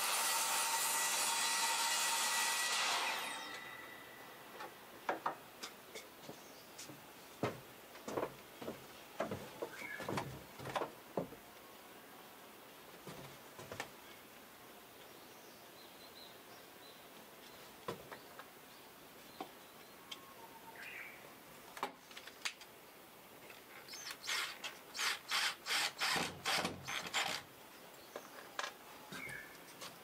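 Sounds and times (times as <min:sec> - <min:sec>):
miter saw cutting wood: 0:00.0 - 0:04.2, 0:24.2 - 0:27.4
wood knocking and clattering: 0:05.0 - 0:06.0, 0:07.4 - 0:11.4.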